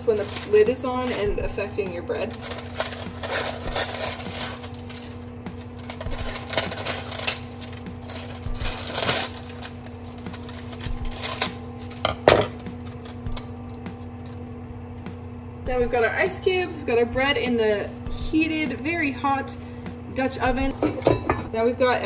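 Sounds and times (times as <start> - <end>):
paper crinkling and rustling: 0.0 - 1.3, 2.2 - 13.2
low hum: 0.0 - 22.0.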